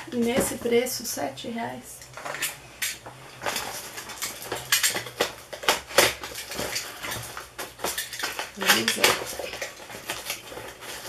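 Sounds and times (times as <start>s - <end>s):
package rustling and being cut open: 3.4s - 11.0s.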